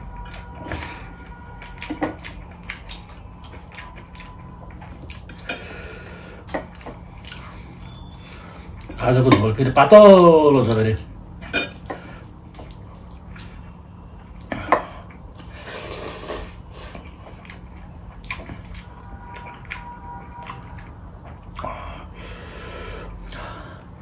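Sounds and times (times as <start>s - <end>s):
wet squelching of fingers in food: 17.4s - 21.9s.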